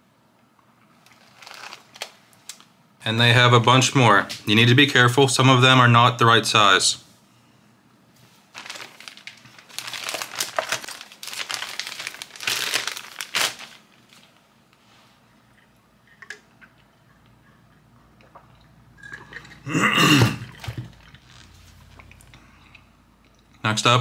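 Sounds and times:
plastic packaging crinkling: 1.0 - 2.7, 8.4 - 14.5, 20.5 - 22.3.

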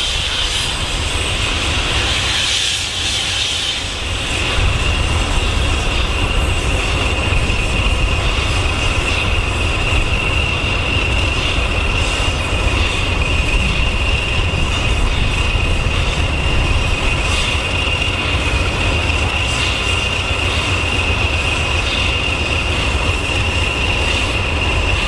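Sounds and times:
high-pitched whine: 0.0 - 25.0
train low rumble: 0.0 - 25.0.

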